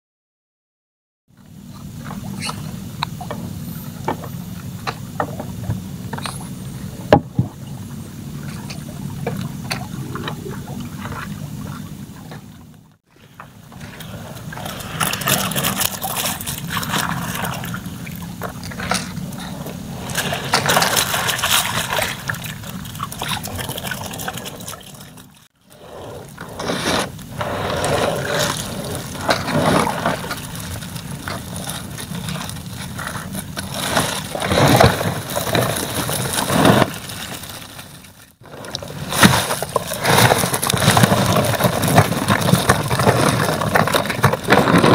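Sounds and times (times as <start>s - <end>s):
water dripping and splashing: 21.0s - 25.5s.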